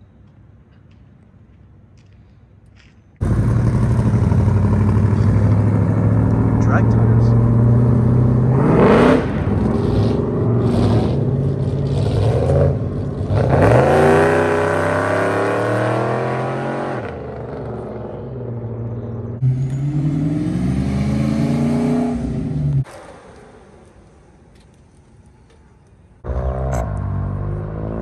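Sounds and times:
car engine revving: 3.2s - 23.8s, 26.2s - 28.0s
car pulling away: 3.2s - 24.4s, 26.2s - 28.0s.

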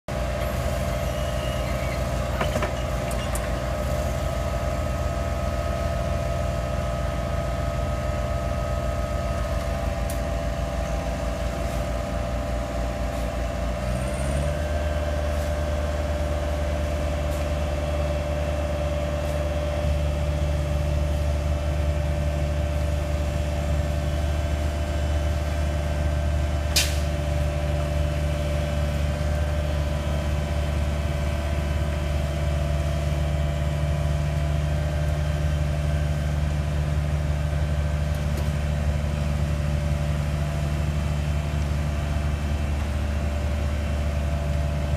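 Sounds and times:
diesel engine running: 0.1s - 44.9s
engine whine: 0.1s - 44.9s.

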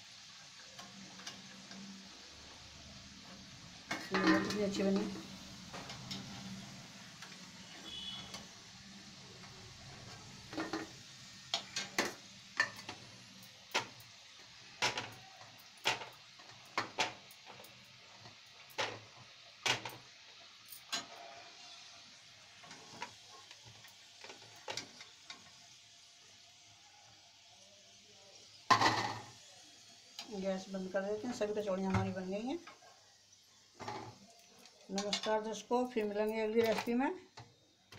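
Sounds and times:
oil sizzling: 0.0s - 37.9s
metal spoon clinking on pan: 3.9s - 4.8s.

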